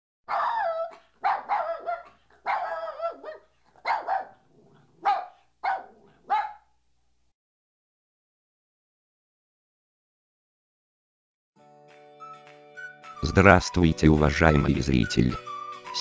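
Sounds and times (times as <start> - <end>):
dog barking and yowling: 0.3 - 6.7.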